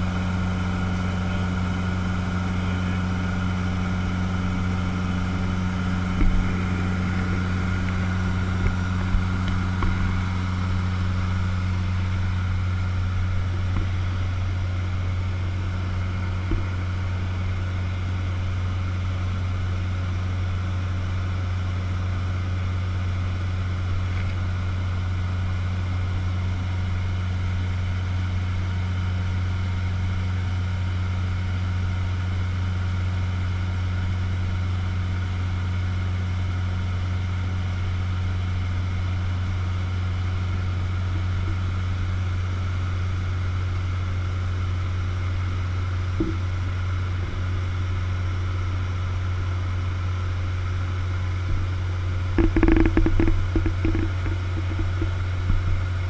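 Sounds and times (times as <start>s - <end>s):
airplane engine droning in cabin: 0.0s - 56.0s.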